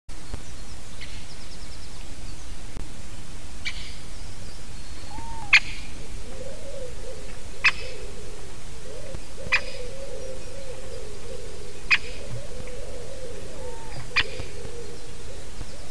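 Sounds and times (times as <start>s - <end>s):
woodpecker calling: 4.8s - 15.9s
low wavering call: 5.0s - 15.9s.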